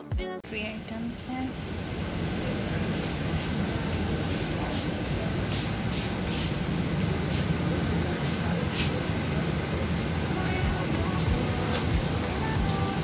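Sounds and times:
supermarket background din: 2.4 - 13.0.

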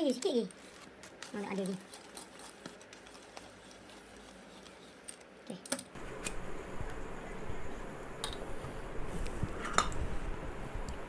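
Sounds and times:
hand coffee grinder rattling: 0.0 - 5.3.

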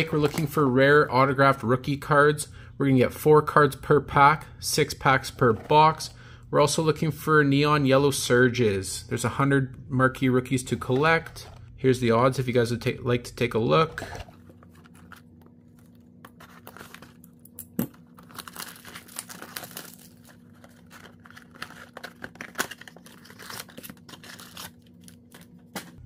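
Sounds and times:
cardboard packaging tearing: 14.1 - 17.2, 18.0 - 26.0.

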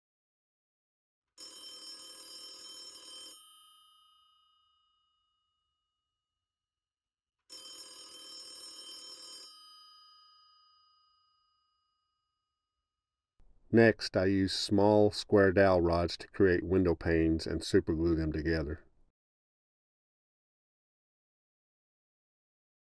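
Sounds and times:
telephone bell ringing: 1.4 - 5.4, 7.5 - 11.7.

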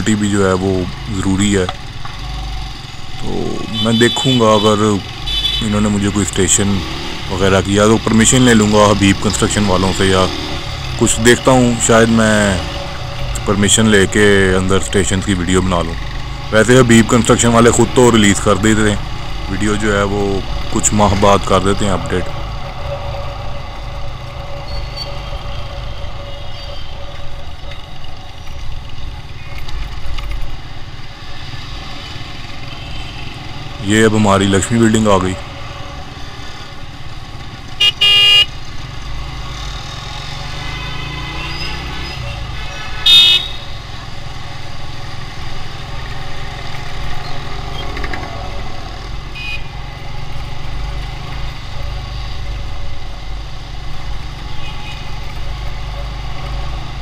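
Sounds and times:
motorcycle engine running: 0.4 - 42.6
horn toot: 3.3 - 6.0, 37.8 - 38.6, 40.4 - 43.8.

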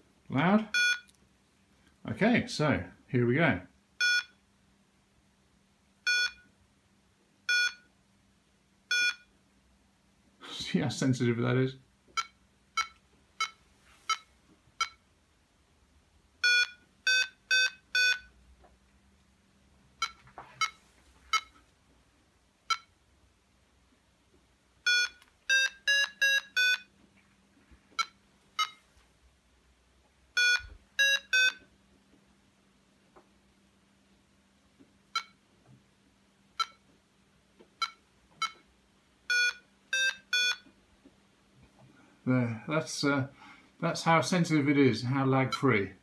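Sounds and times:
variometer beeping: 4.0 - 4.4, 6.1 - 6.5, 7.5 - 7.9, 8.9 - 9.3, 12.1 - 15.0, 16.4 - 18.3, 22.7 - 22.9, 24.9 - 26.9, 30.4 - 31.6, 39.3 - 40.6.

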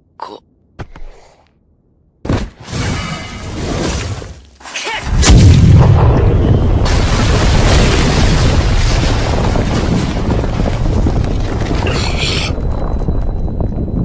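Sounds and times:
deep explosion rumble: 5.1 - 14.0.

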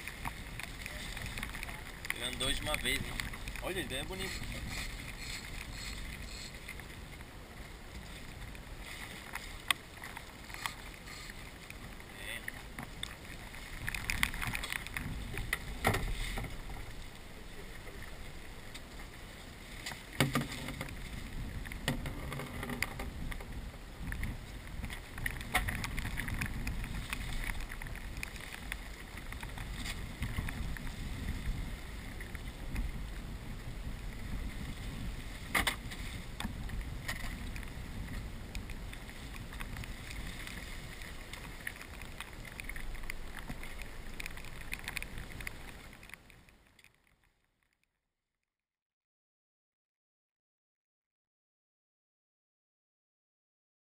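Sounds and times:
wind rumble on microphone: 0.0 - 46.7.

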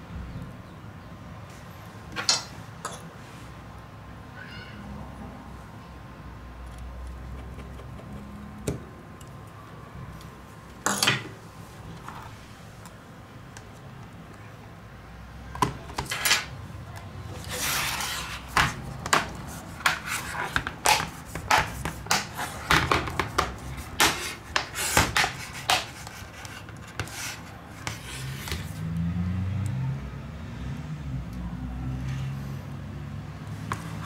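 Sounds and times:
rubbing scrape: 17.4 - 18.6, 19.4 - 22.7, 24.0 - 28.8.

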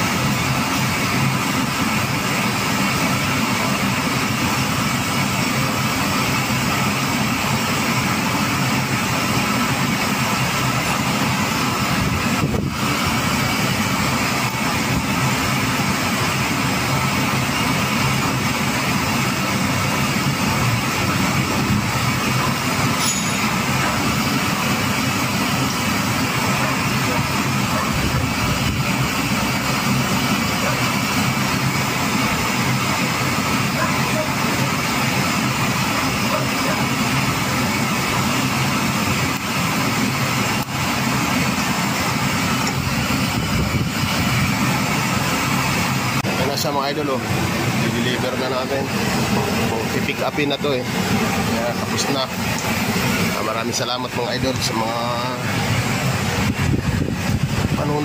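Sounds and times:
machinery drone: 0.0 - 58.0.

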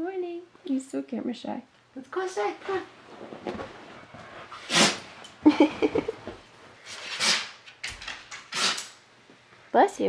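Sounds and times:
dog snorting: 4.2 - 5.1.

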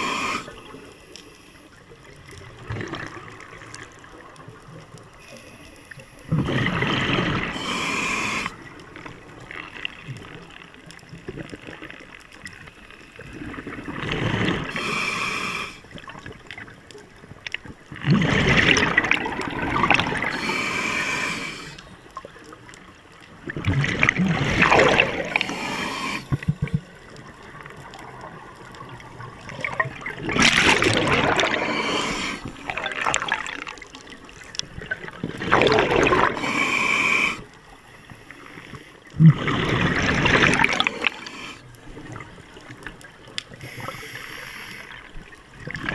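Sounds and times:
diver breathing through regulator: 0.0 - 1.6, 6.6 - 8.7, 14.5 - 15.9, 20.0 - 21.9, 25.0 - 26.5, 30.4 - 32.8, 35.9 - 37.6, 40.5 - 41.7, 43.5 - 45.1.

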